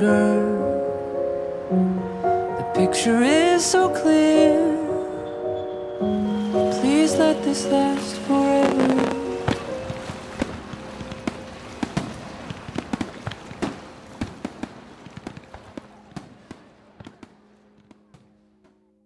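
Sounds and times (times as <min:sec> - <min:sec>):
fireworks bangs and crackles: 0:06.6 - 0:18.3.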